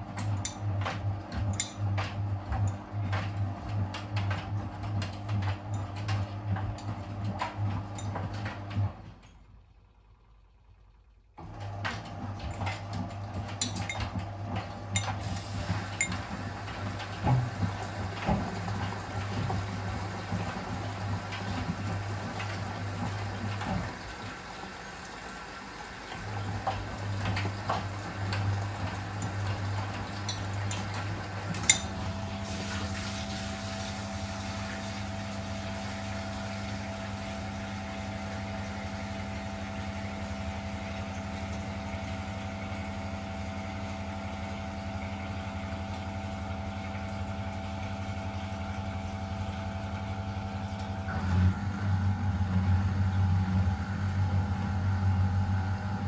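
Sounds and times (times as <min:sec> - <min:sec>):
washing machine clicks: 0:00.0 - 0:09.4, 0:11.4 - 0:24.2, 0:26.1 - 0:33.2
washing machine hum: 0:00.0 - 0:56.0.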